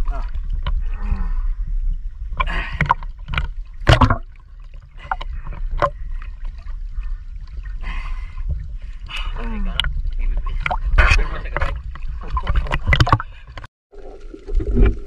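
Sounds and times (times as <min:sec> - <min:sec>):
low rumble of water on microphone: 0:00.0 - 0:15.0
seawater sloshing and splashing: 0:02.0 - 0:15.0.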